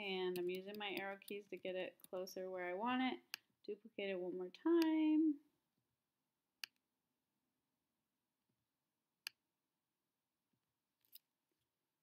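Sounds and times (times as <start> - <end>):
computer mouse clicks: 0.3 - 2.2.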